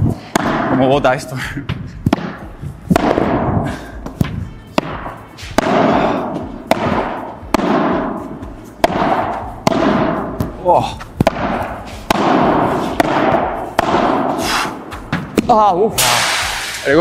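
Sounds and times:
padel racket hits with echo: 2.1s - 8.2s, 8.8s - 10.6s, 11.2s - 14.4s.

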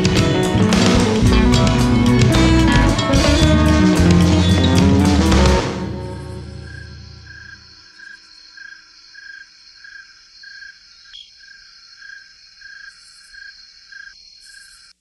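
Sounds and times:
crickets chirping: 6.2s - 15.0s
high insect trill: 6.3s - 14.9s.

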